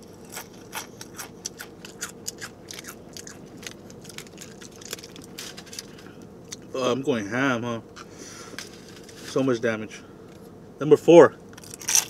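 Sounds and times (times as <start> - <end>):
chips being crunched: 0.3 - 5.9, 11.6 - 12.0.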